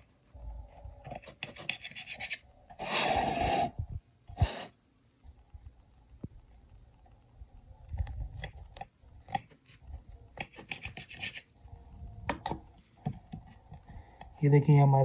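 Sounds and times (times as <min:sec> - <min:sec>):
knife sawing through bread: 0:01.2 - 0:03.8.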